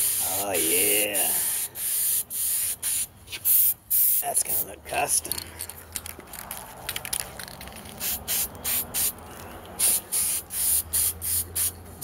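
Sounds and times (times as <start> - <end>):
spray paint can hissing spurts: 0.0 - 4.6, 7.0 - 9.2, 9.8 - 11.8.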